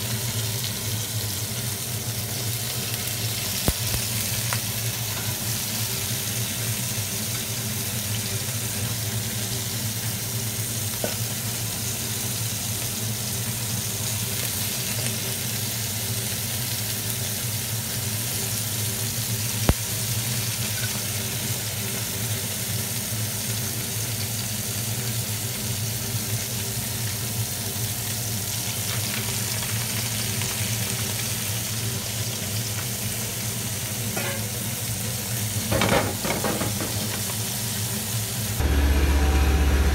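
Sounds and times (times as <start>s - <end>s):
fish sizzling in oil: 0.0s - 39.9s
low steady hum: 38.6s - 39.9s.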